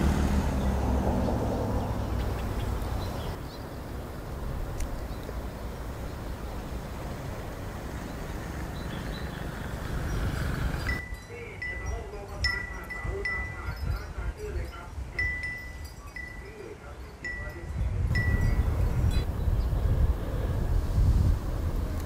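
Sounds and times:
wind rumble on microphone: 0.0s - 16.6s, 17.2s - 22.0s
wind chime ringing: 10.8s - 18.7s.

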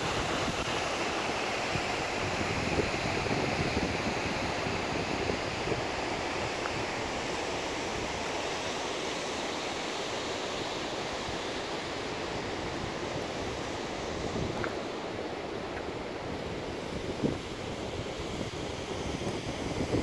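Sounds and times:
creek water rushing: 0.0s - 20.0s
wind rumble on microphone: 1.7s - 7.2s, 12.4s - 20.0s.

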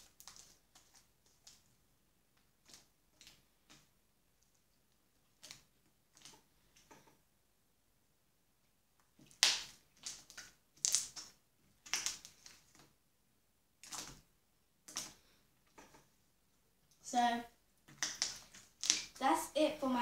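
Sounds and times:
slime crackling and squelching: 0.0s - 1.8s, 2.4s - 6.9s, 9.0s - 13.0s, 13.8s - 15.9s, 16.9s - 20.0s.

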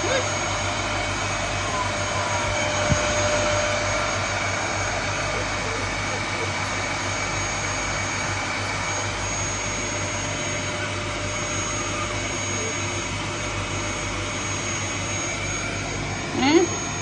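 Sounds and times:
vacuum cleaner running: 0.0s - 17.0s.

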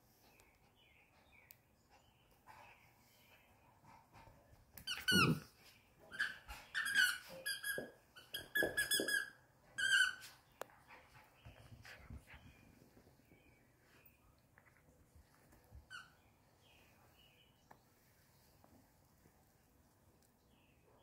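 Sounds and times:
dog toy squeaking: 4.9s - 5.4s, 6.1s - 10.2s.

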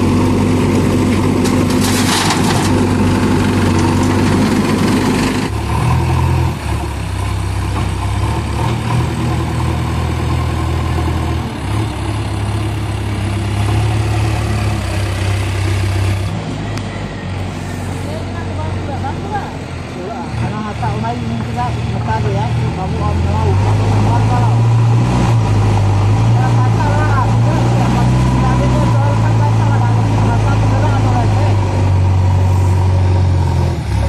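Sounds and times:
backhoe loader diesel engine working: 0.0s - 34.0s
diesel tractor engines running: 0.0s - 34.0s.

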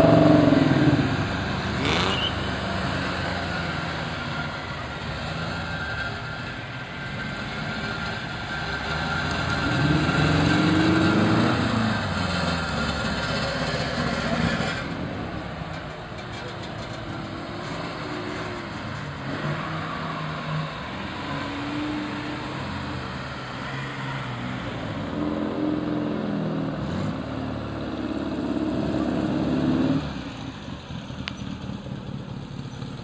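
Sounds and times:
sports car engines revving: 0.0s - 15.1s.

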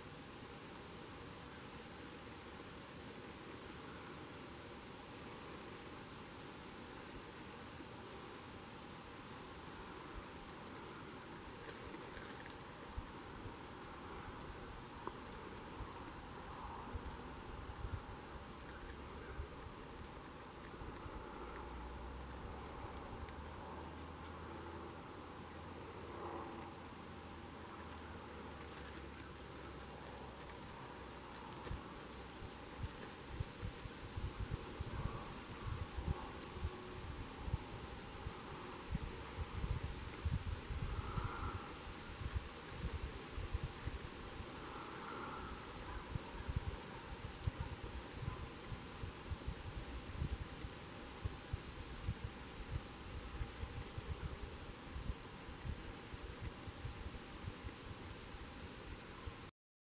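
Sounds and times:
high steady insect buzz: 0.0s - 59.5s
crickets fast pulsing trill: 30.5s - 59.4s.

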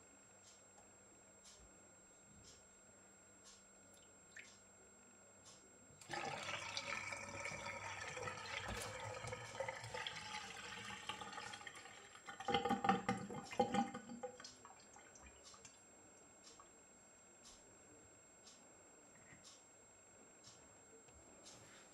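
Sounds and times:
drain gurgling: 6.0s - 15.4s
water draining from sink: 6.0s - 15.4s.

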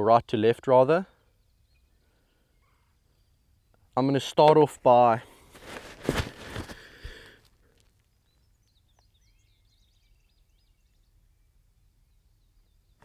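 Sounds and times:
bird chirping: 1.0s - 4.5s, 7.9s - 13.0s
rustle: 5.3s - 8.3s.

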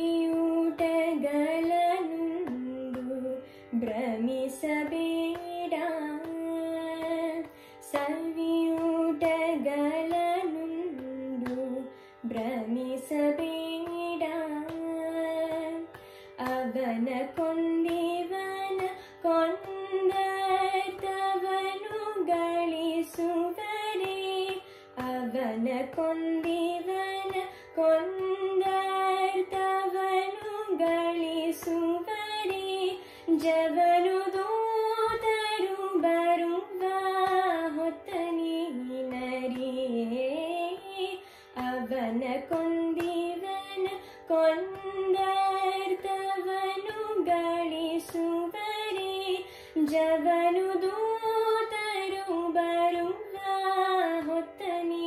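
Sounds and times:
woman singing: 0.0s - 55.0s.

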